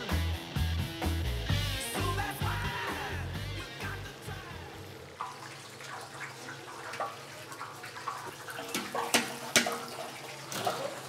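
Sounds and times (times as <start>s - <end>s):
food frying in oil: 2.6s - 11.0s.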